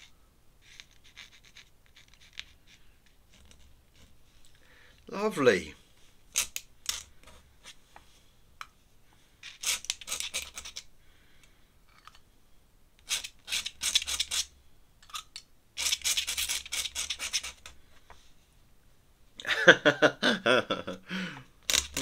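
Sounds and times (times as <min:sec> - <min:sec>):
ink brush scratching paper: 0:00.0 - 0:04.4, 0:15.8 - 0:17.7.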